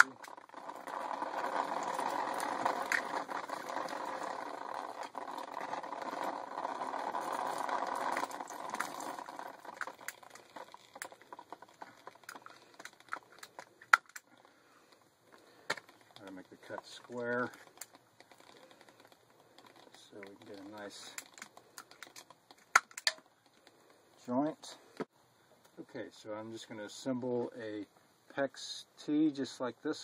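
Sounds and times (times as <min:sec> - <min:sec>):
water spattering from cut pipe: 0:00.0 - 0:12.8
plastic pipe handled: 0:00.0 - 0:14.6, 0:15.3 - 0:23.8.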